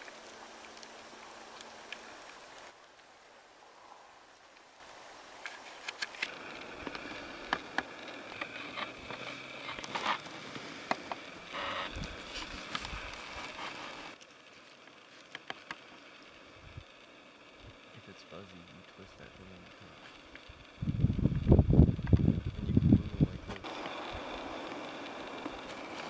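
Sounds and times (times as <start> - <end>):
dry grass rustling and crackling: 4.8 - 18.0, 19.2 - 26.0.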